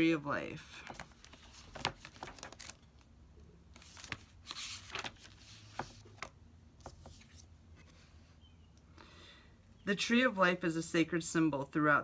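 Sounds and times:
pages rustling: 0.8s - 3.1s, 3.7s - 8.1s.

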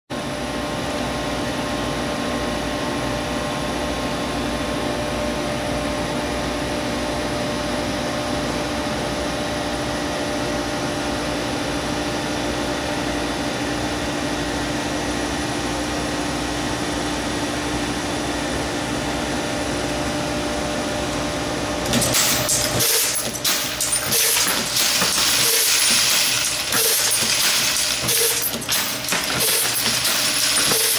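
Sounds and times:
machine motor hum and whir: 20.9s - 30.9s.

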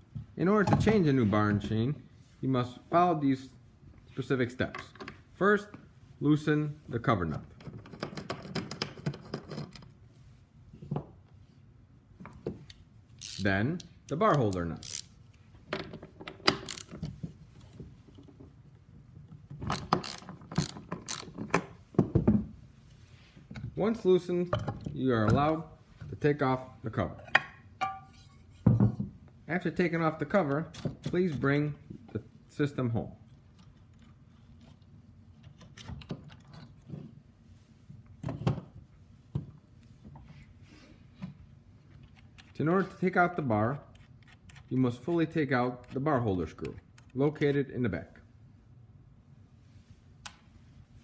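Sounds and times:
hand ratchet clicking: 13.2s - 13.5s, 14.1s - 15.1s, 16.5s - 17.0s, 19.7s - 21.4s
chainsaw parts clicking and knocking: 15.8s - 17.2s, 19.6s - 21.7s.

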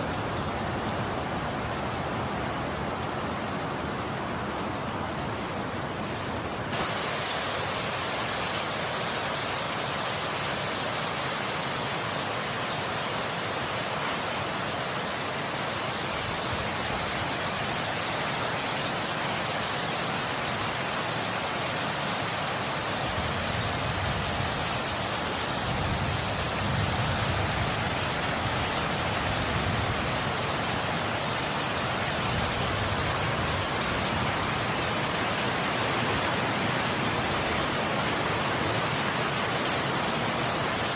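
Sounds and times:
wind: 0.0s - 40.9s
wind-driven snow hissing: 6.7s - 9.6s.

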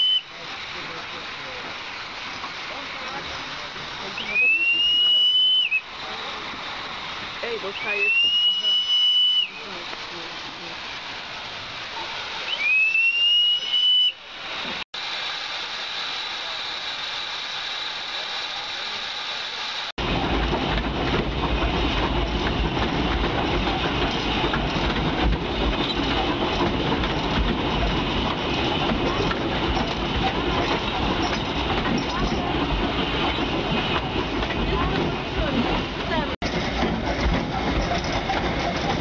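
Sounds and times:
steam locomotive whistle: 0.0s - 0.3s, 4.2s - 5.9s, 7.7s - 9.7s, 12.4s - 14.2s
steam hissing: 0.0s - 39.0s
train rumbling along track: 0.0s - 39.0s.

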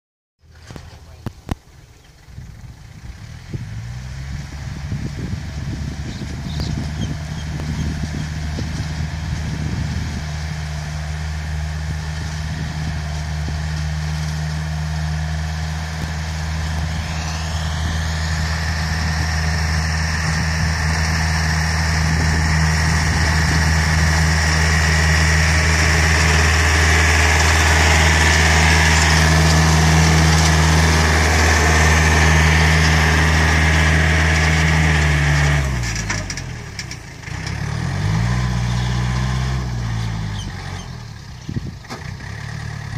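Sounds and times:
tractor diesel engine running: 0.4s - 42.9s.

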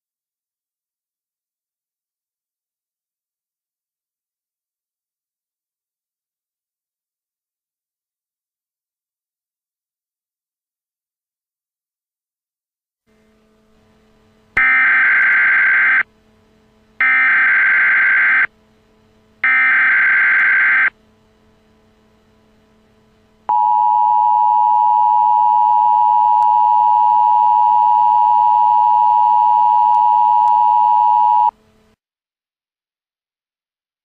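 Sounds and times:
buzzy digital data tones: 14.6s - 16.1s, 17.0s - 18.5s, 19.4s - 20.9s
two-tone attention signal: 23.5s - 31.5s.

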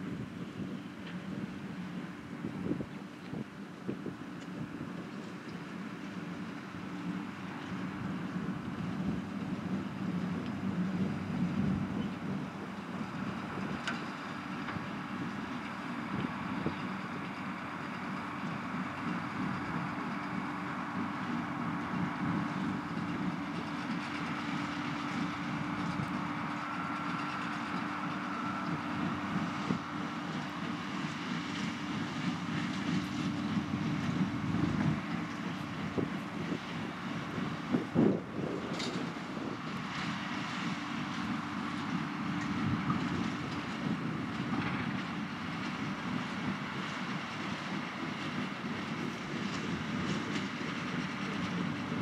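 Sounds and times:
tractor running: 0.0s - 52.0s.

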